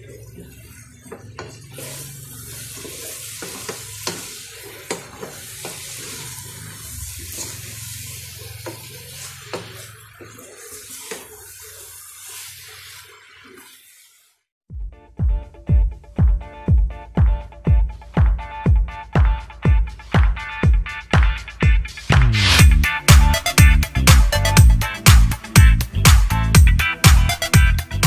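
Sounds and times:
noodles sizzling in a pan: 0.0 - 14.5.

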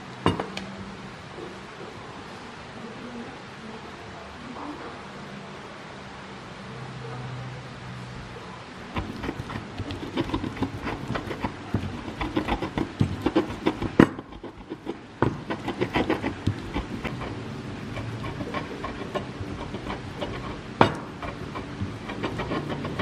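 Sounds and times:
stone pestle pounding in mortar: 9.0 - 23.0.

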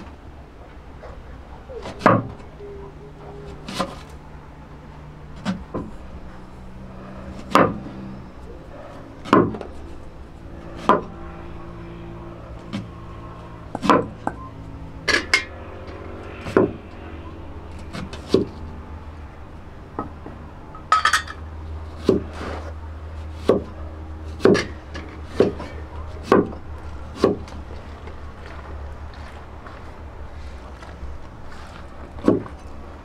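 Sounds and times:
utensils clinking against bowls: 20.8 - 21.4.

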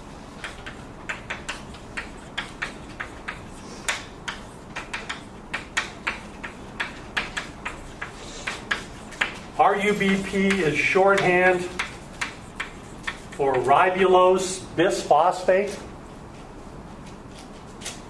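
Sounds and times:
room hiss: 0.0 - 17.0.

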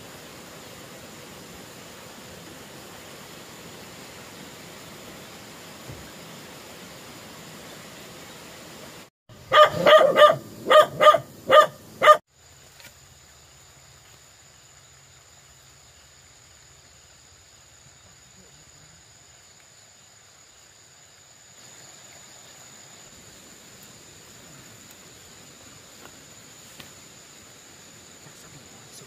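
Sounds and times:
dog barking: 9.5 - 12.2.

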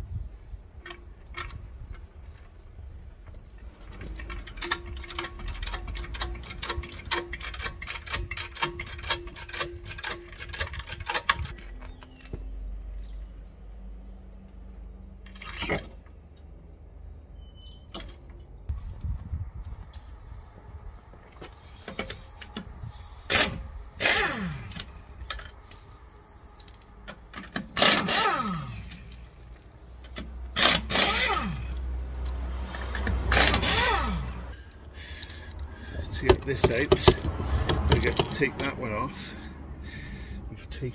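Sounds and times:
trolley jack clicking: 3.8 - 11.7, 21.7 - 25.9, 26.6 - 34.6
air impact wrench: 21.6 - 25.0, 25.6 - 34.6.

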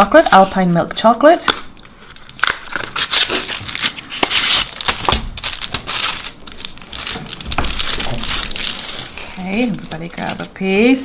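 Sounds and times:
foil and cardboard crinkling: 1.8 - 10.6.

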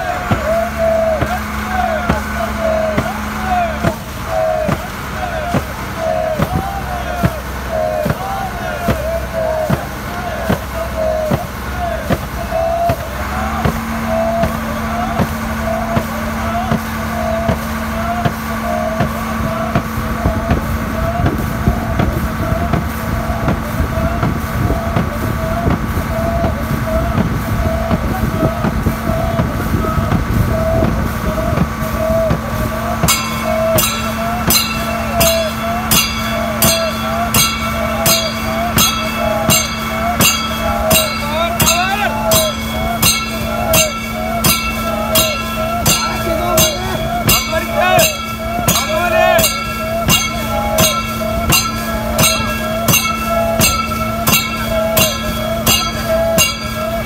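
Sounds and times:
motorboat engine drone: 0.0 - 57.0
paddling in unison: 0.0 - 57.0
rowers chanting: 0.0 - 57.0
sharp rhythmic strokes: 31.7 - 57.0.

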